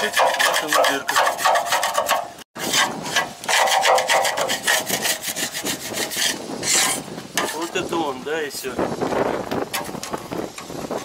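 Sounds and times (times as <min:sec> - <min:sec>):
rough rasping scraping strokes: 0:00.0 - 0:08.1.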